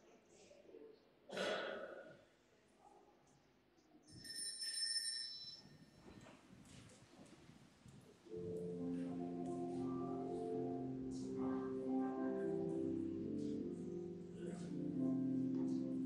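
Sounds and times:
low murmur in church: 0.0s - 4.0s, 6.0s - 16.0s
small bell ringing: 4.1s - 6.0s.

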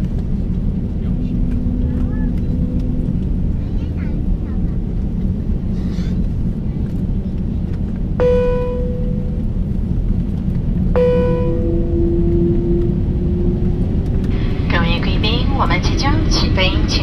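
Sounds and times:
aircraft cabin rumble: 0.0s - 17.0s
bell-like cabin chimes: 8.2s - 9.4s, 11.0s - 14.1s
low steady tone: 8.2s - 17.0s.

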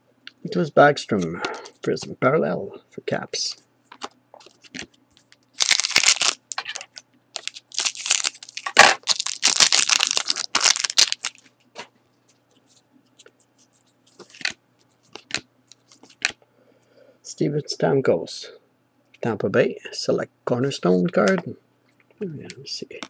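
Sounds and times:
foil wrapper ripping and crinkling: 5.6s - 11.4s.

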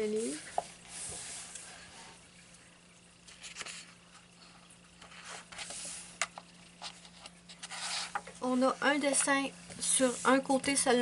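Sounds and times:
paper pages rustling: 3.2s - 4.3s.

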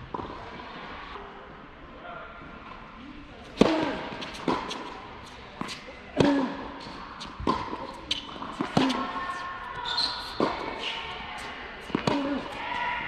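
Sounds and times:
racket hitting tennis ball: 3.5s - 9.2s, 9.9s - 12.8s
tennis ball bouncing: 3.6s - 12.7s.

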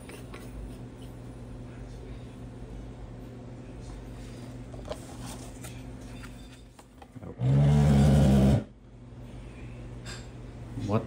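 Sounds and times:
faint steady hum: 0.0s - 11.0s
loud raspy buzzing hum: 7.2s - 8.8s.

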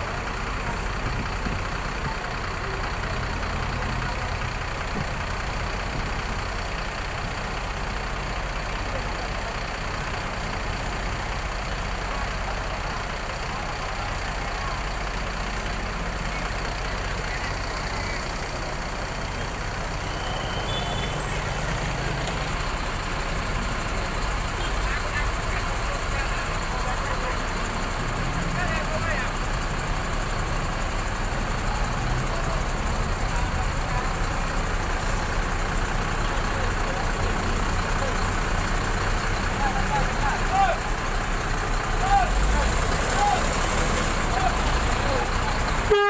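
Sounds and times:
bus diesel engine idling: 0.0s - 46.0s.

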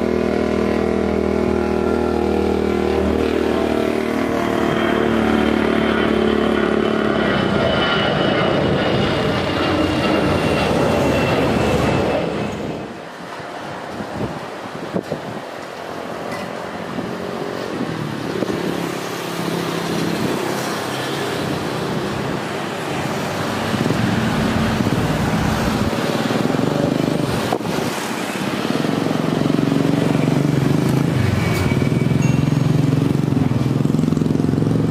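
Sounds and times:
engine humming: 0.0s - 13.1s, 15.6s - 27.8s.

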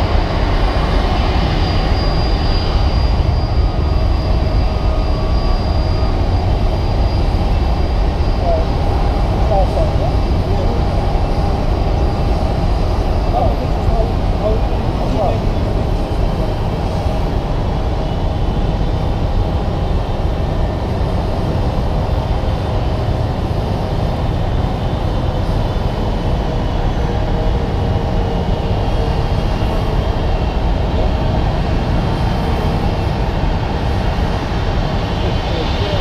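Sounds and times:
aircraft engines rumbling: 0.0s - 36.0s.

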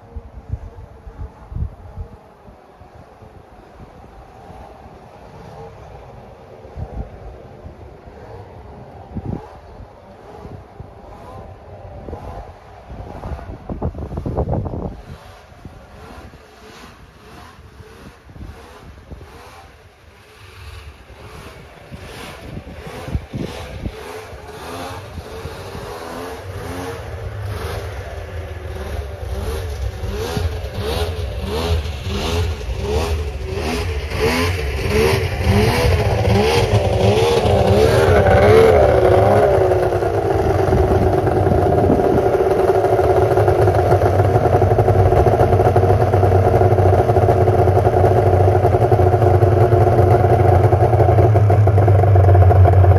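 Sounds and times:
two-stroke snowmobile engine: 3.8s - 52.9s.

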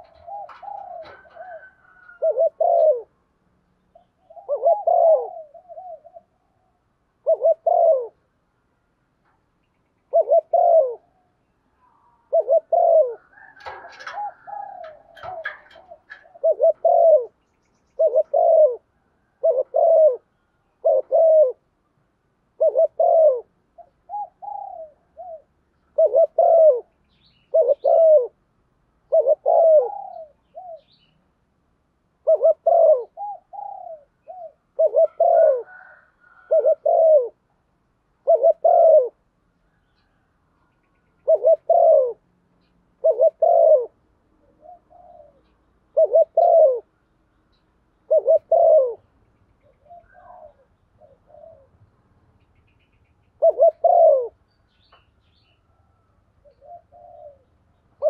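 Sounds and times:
dove cooing: 0.0s - 3.2s, 3.9s - 8.3s, 10.1s - 21.7s, 22.5s - 28.4s, 29.0s - 31.1s, 32.2s - 37.5s, 38.2s - 40.2s, 41.2s - 42.3s, 42.9s - 46.9s, 48.0s - 51.8s, 53.4s - 54.4s, 55.8s - 58.0s.

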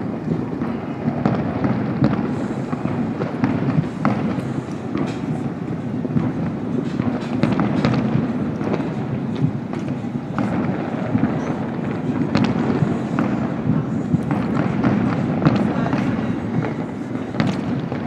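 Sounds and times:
distant fireworks booming: 0.0s - 18.0s
fireworks pops and crackles: 0.0s - 18.0s.

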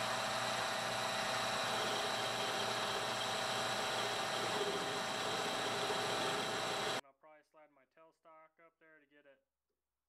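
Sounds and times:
metal lathe humming and whining: 0.0s - 7.0s.

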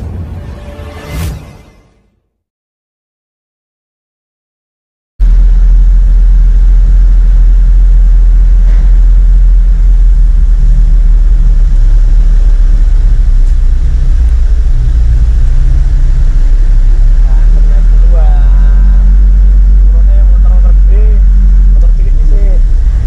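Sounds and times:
truck engine idling: 5.2s - 23.0s.

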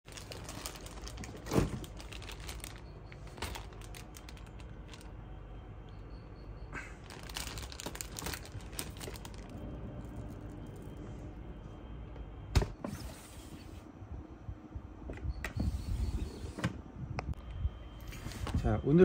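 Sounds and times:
plastic bag crinkling: 0.0s - 5.2s, 7.0s - 11.0s.

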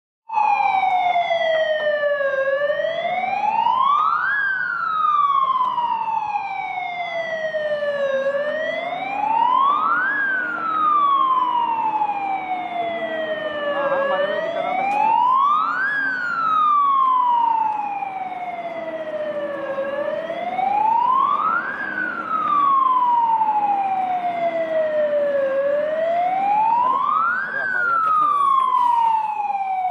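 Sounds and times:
fire engine siren wailing: 0.3s - 29.9s.

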